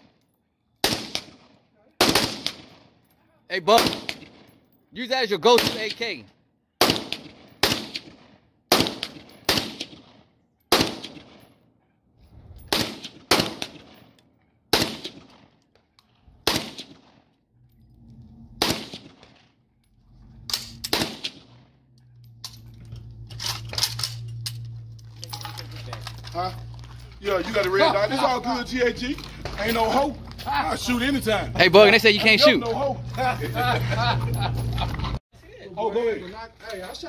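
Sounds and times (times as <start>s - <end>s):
rifle firing single shots: 0.8s - 3.0s, 3.7s - 4.5s, 6.8s - 11.4s, 12.7s - 14.0s, 14.7s - 15.6s, 16.4s - 17.3s, 18.5s - 19.5s, 20.5s - 21.8s.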